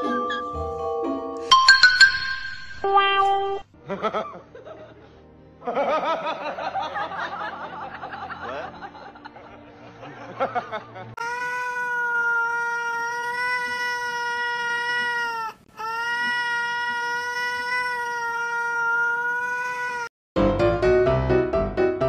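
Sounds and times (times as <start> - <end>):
piano music: 0.0 - 3.6, 20.4 - 22.0
cat meowing: 16.1 - 20.1.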